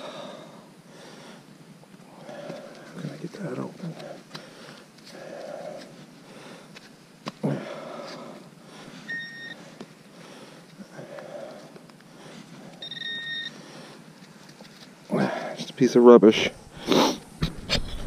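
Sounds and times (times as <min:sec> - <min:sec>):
hands crumbling frozen dirt: 0:02.0 - 0:08.4
metal detector beeps: 0:09.0 - 0:09.6, 0:12.8 - 0:13.6.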